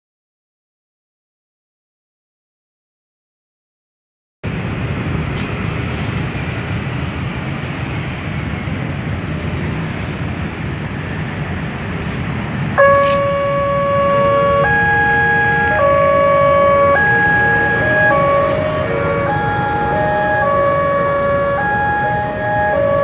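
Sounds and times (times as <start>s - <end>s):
road traffic noise: 4.4s - 23.0s
level crossing two-note alarm: 12.8s - 23.0s.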